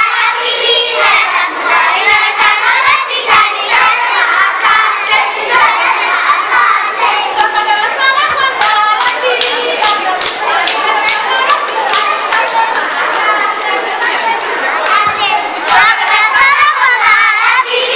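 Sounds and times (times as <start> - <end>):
children singing and shouting: 0.0 - 17.9
hands clapping: 7.3 - 16.6.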